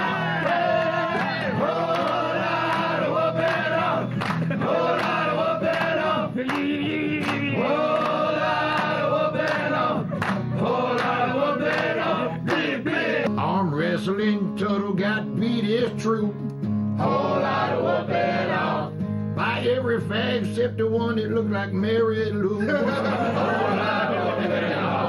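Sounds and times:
voices singing together: 0.0 - 13.3, 17.0 - 19.5, 22.7 - 25.0.

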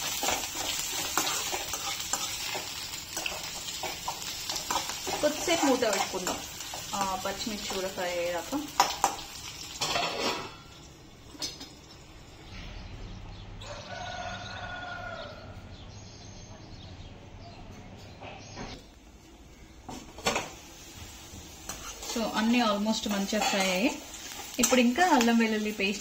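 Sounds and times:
food frying in a covered pan: 0.0 - 12.5, 19.8 - 26.0.

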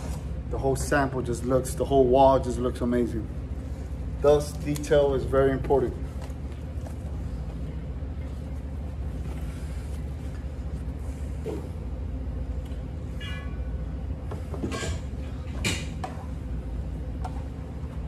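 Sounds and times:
steady low hum: 0.0 - 18.0
short high squeak: 13.2 - 13.7.

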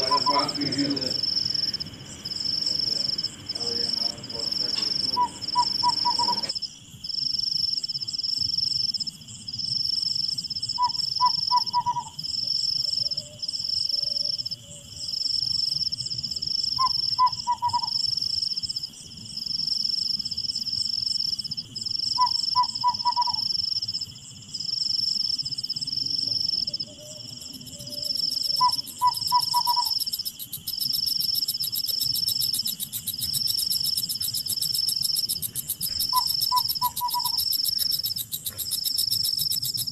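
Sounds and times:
harsh bird call: 0.0 - 1.8, 3.6 - 6.5
insects trilling: 0.0 - 39.9.

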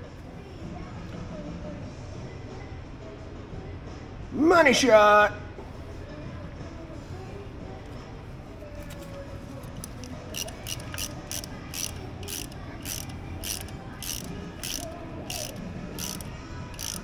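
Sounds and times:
hand ratchet clicking: 9.6 - 17.0.

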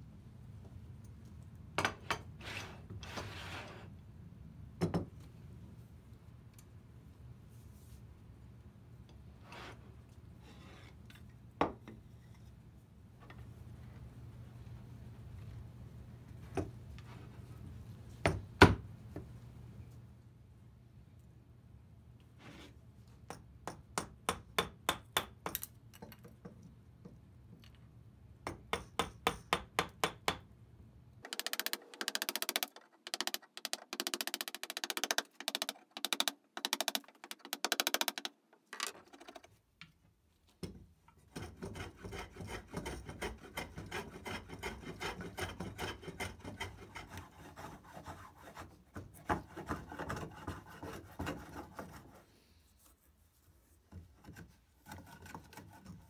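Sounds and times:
mallet striking chisel: 28.4 - 30.5
hand tool rasping wood: 31.3 - 38.3, 41.3 - 52.2, 54.3 - 56.0.

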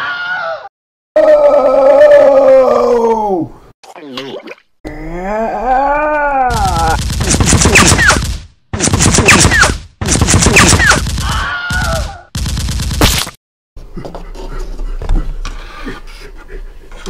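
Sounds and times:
automatic gunfire bursts: 7.0 - 11.2.

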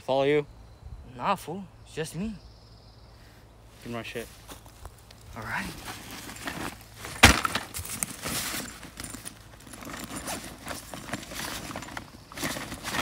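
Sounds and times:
crackling and rustling of mulch: 3.2 - 13.0
bag thumping on mulch: 5.8 - 13.0.

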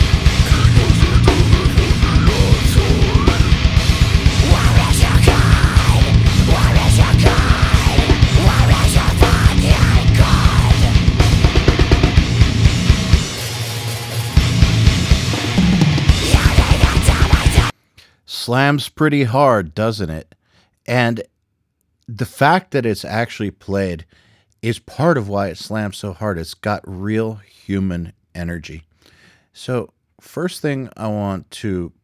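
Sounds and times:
rapid pounding kick drum: 0.0 - 13.4
distorted guitars: 0.0 - 17.7
harsh vocals: 0.0 - 20.2.

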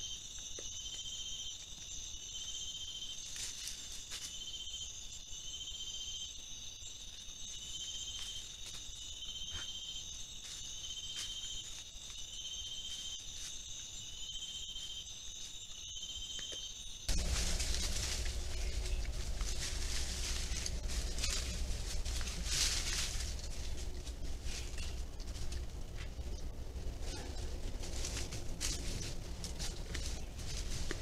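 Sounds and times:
insects buzzing: 0.0 - 31.0
pulsed insect trill: 0.0 - 31.0
rustling noise: 17.1 - 31.0.

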